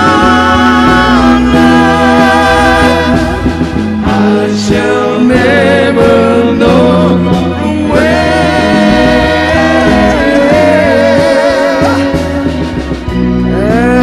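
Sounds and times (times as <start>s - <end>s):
man singing with vibrato: 0.0s - 14.0s
pop band playing: 0.0s - 14.0s.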